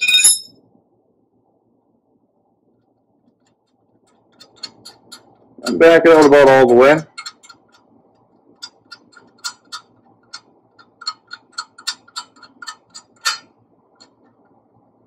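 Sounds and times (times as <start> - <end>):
wrench clicking on bolt: 7.1 - 7.6, 8.6 - 14.2.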